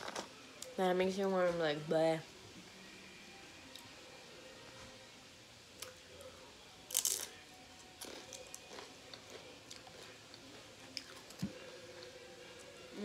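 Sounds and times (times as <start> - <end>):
chip crunching: 6.8 - 12.8
chewing crunches: 6.9 - 12.1.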